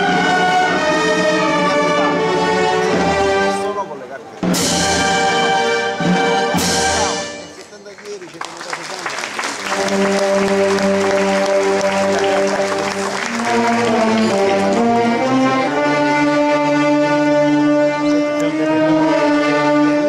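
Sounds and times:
brass band playing slow march: 0.0s - 7.7s, 8.5s - 20.0s
crowd applause: 7.5s - 15.6s.

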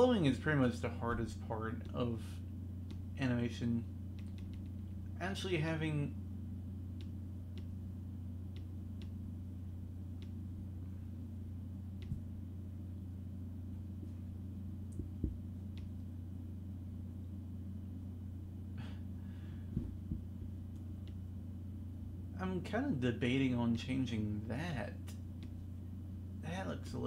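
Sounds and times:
low hum: 0.0s - 27.0s
computer clicks: 4.1s - 4.8s.

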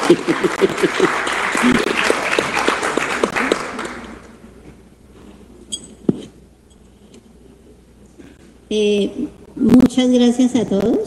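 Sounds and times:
audience applauding: 0.0s - 4.3s.

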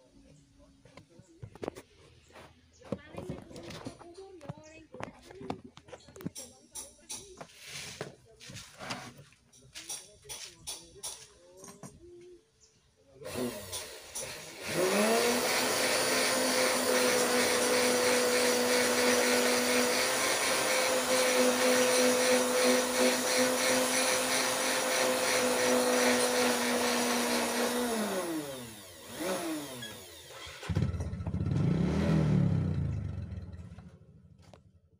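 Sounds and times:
rotary tool motor whine: 13.3s - 30.8s.

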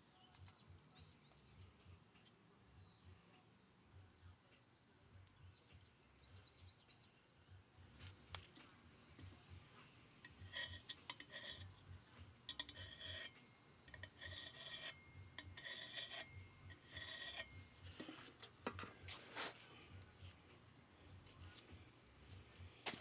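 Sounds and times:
metal scribe scratching steel: 8.5s - 23.0s.

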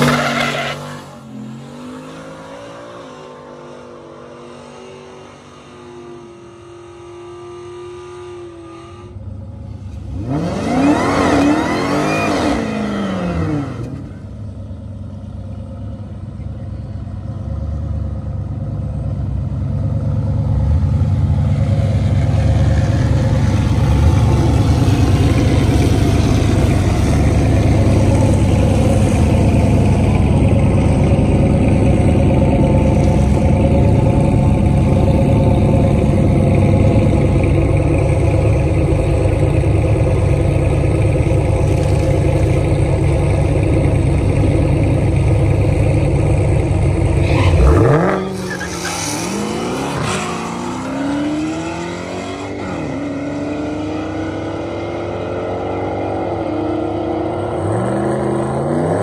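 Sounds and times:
deep engine rumble: 9.1s - 52.0s
engine revving: 10.1s - 14.2s, 22.0s - 59.0s.

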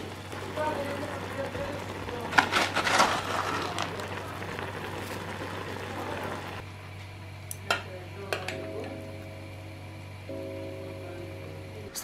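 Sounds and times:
noodle broth bubbling: 0.0s - 6.6s.

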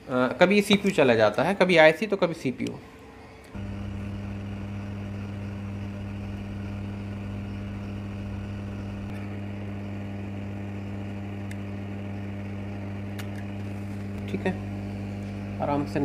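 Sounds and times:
hot-air blower humming: 3.5s - 16.0s.

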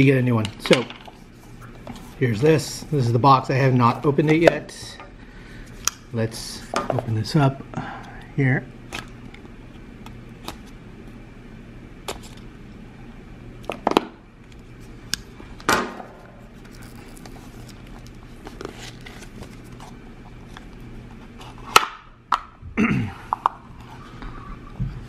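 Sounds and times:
soft handling noise: 16.3s - 21.6s.

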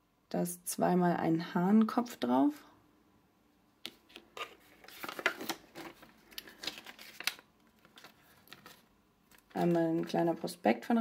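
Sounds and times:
paper leaflet rustling and crinkling: 4.1s - 10.6s.

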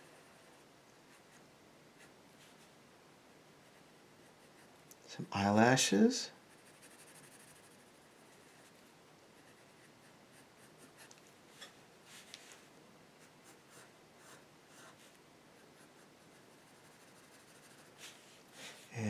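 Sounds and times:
pencil scratching on paper: 6.5s - 11.7s, 13.2s - 18.8s.

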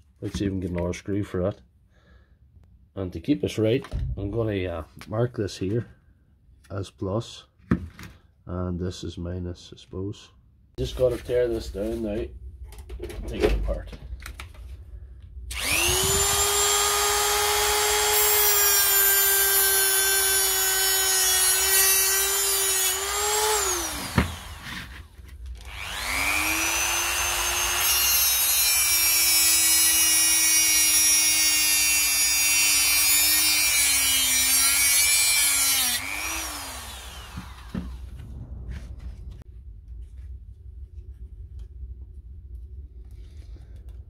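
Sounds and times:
rotary tool cutting: 15.5s - 25.0s, 25.6s - 38.0s.

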